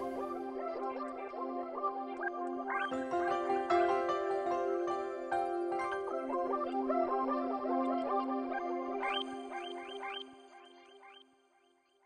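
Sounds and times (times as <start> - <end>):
background music with sustained notes: 0.0 - 11.3.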